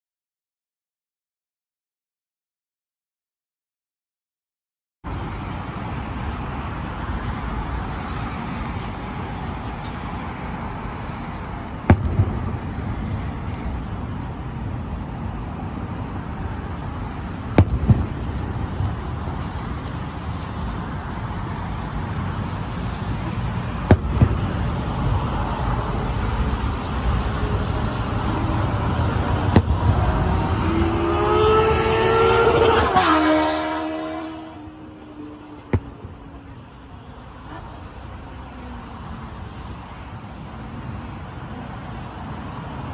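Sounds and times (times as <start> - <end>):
vehicle passing: 5.1 - 42.9
background rumble: 5.2 - 30.9
firework shells booming: 11.8 - 13.1, 17.4 - 19.2, 23.8 - 25.2, 29.3 - 30.4.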